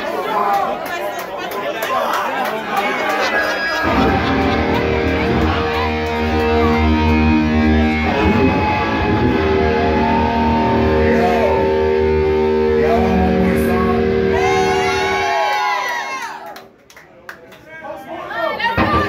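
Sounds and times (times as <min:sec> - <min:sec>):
crowd chatter: 0:00.0 - 0:15.5, 0:17.1 - 0:19.0
electric guitar ringing chord: 0:03.5 - 0:15.4
low amp drone: 0:03.8 - 0:15.3.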